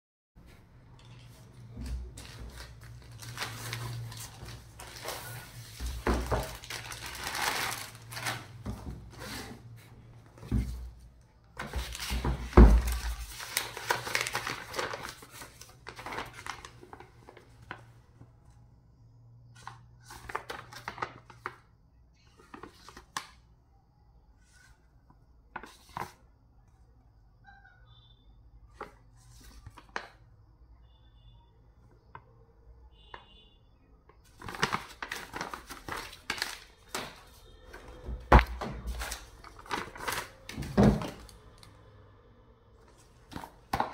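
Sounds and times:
paper rustling: 0:00.5 - 0:11.0, 0:11.6 - 0:17.9, 0:19.6 - 0:21.6, 0:22.3 - 0:23.4, 0:25.5 - 0:26.2, 0:34.3 - 0:41.4
plastic wrapping crinkling: 0:01.0 - 0:08.6, 0:11.6 - 0:17.4, 0:34.3 - 0:37.4, 0:38.3 - 0:41.6.

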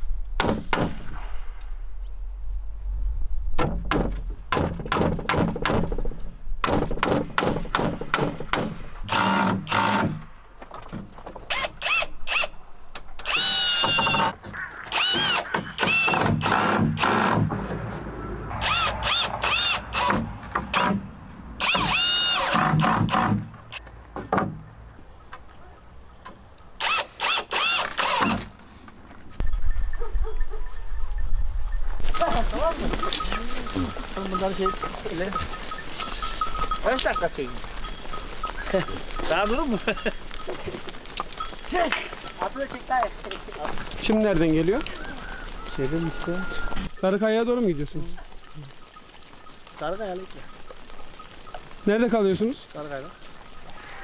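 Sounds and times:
sharp knocks on wood: 0:03.6 - 0:08.8
cordless drill driving screws: 0:09.1 - 0:10.2, 0:11.5 - 0:12.5, 0:13.2 - 0:14.3, 0:14.9 - 0:17.4, 0:21.6 - 0:23.4, 0:26.8 - 0:28.5.

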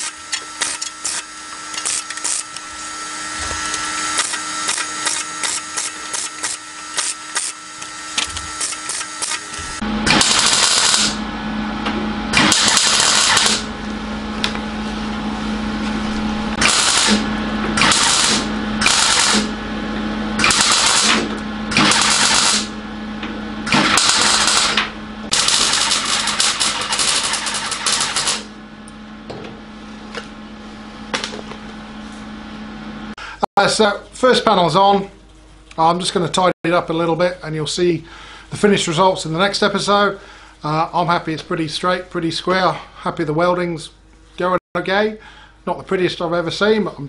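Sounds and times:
welding arc crackling: 0:00.0 - 0:11.2, 0:12.4 - 0:14.5, 0:16.1 - 0:19.6, 0:20.4 - 0:22.8, 0:23.7 - 0:28.5
steady low hum: 0:00.0 - 0:47.0.

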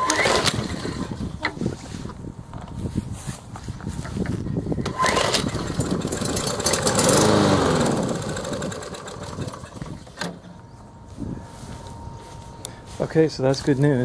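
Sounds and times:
lawn mower engine pull-started: 0:00.0 - 0:02.7, 0:04.0 - 0:10.7.

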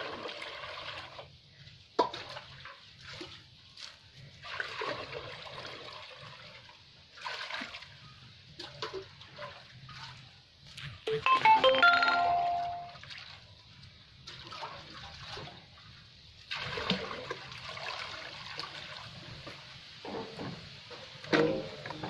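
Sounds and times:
water pouring and splashing: 0:00.0 - 0:22.0
metal bowl ringing: 0:11.1 - 0:13.0.

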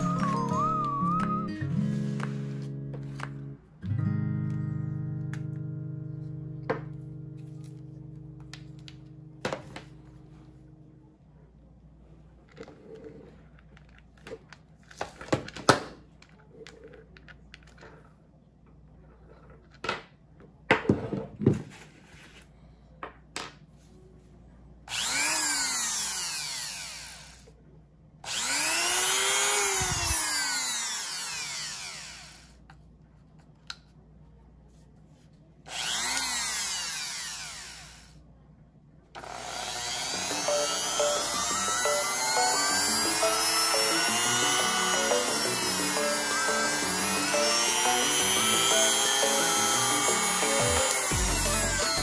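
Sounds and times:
rotary tool motor whining: 0:24.9 - 0:27.5, 0:28.3 - 0:32.6, 0:35.7 - 0:38.2, 0:39.2 - 0:52.0.

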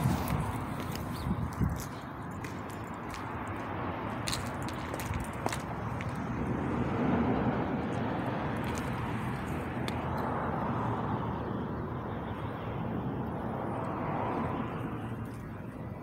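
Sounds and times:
traffic noise from inside car: 0:00.0 - 0:16.0.

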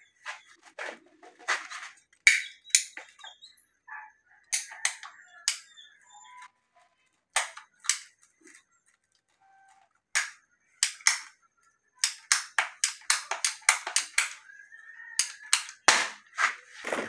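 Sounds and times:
metal tool clicking on pipe fitting: 0:10.2 - 0:11.3, 0:12.0 - 0:14.4.

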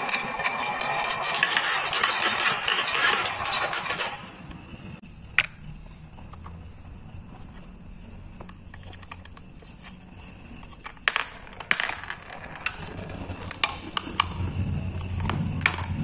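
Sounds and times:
marbles rolling rumble: 0:00.0 - 0:04.4, 0:08.7 - 0:16.0
plastic toy clicks and knocks: 0:01.3 - 0:04.3, 0:08.4 - 0:09.5, 0:10.8 - 0:14.4, 0:15.1 - 0:16.0.

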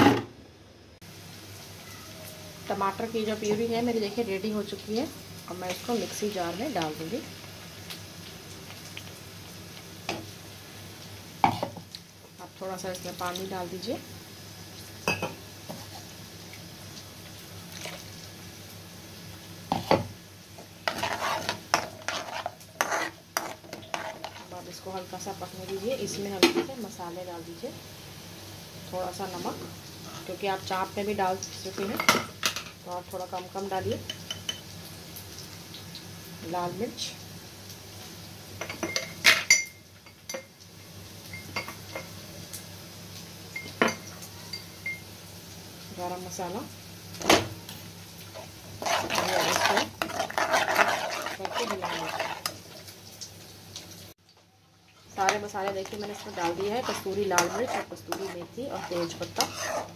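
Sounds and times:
faint sizzling: 0:00.8 - 0:59.9
spoon scraping a pan: 0:20.8 - 0:24.6, 0:48.3 - 0:52.9, 0:55.0 - 0:59.9
metal spoon clinking on pan: 0:38.6 - 0:40.5.

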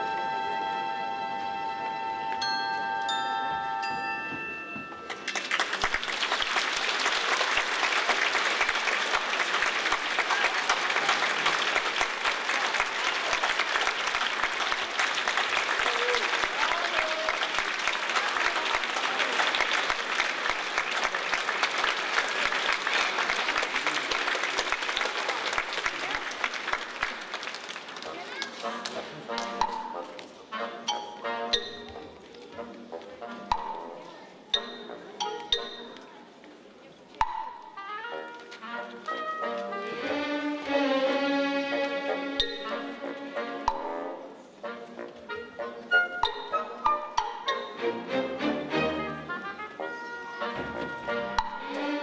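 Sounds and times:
audience applauding: 0:05.1 - 0:29.8.

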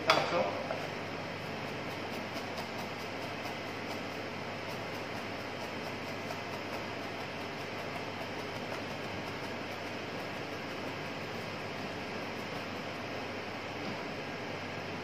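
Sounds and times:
kitchen background hiss and rumble: 0:00.0 - 0:15.0.

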